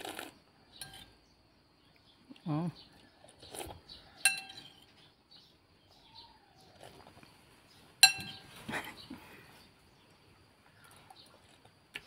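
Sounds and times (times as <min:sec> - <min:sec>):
spoon tapping and scraping: 0:00.8 - 0:01.1, 0:04.2 - 0:04.8, 0:08.0 - 0:08.4
metal spoon clinking ceramic bowl: 0:04.2 - 0:04.7, 0:08.0 - 0:08.4.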